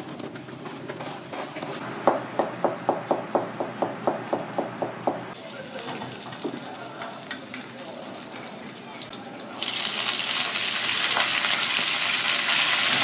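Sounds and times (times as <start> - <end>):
garlic sizzling in oil: 9.0 - 13.0.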